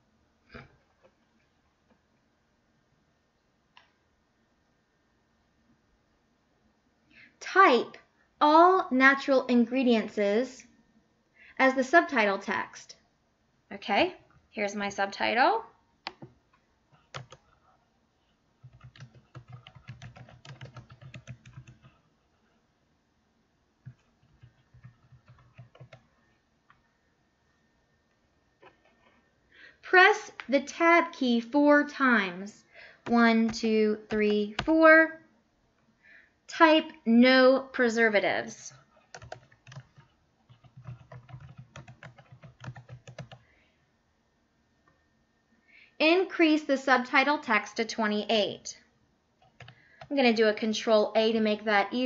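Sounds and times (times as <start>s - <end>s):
faint typing on keyboard: 16.0s - 22.6s, 23.8s - 27.0s, 28.1s - 30.6s, 32.7s - 34.9s, 38.6s - 43.7s, 49.4s - 50.3s.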